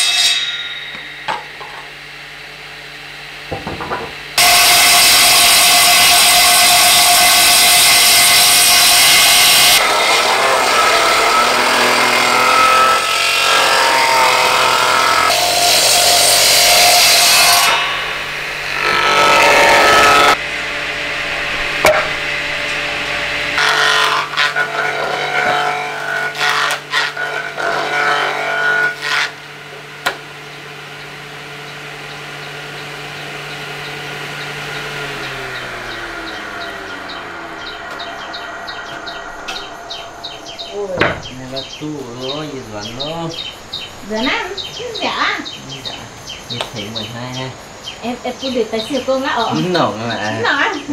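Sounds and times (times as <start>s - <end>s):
planer cutting wood: 3.5s - 44.6s
planer motor humming: 30.2s - 44.8s.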